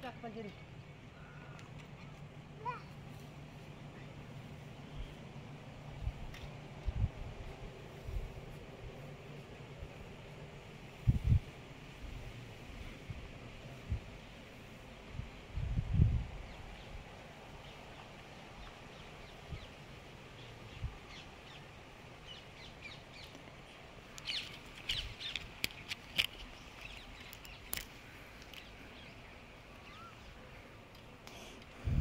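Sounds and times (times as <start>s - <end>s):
faint outdoor hush: 0.0s - 32.0s
birds calling: 16.4s - 31.5s.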